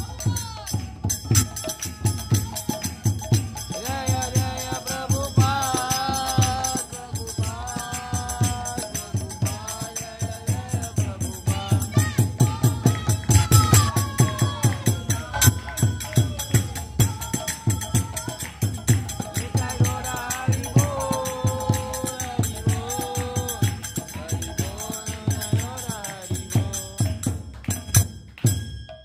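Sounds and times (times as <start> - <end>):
hand drums beating: 0.0 - 29.0
jingling hand cymbals: 0.0 - 29.0
girl and woman singing chant: 3.8 - 27.2.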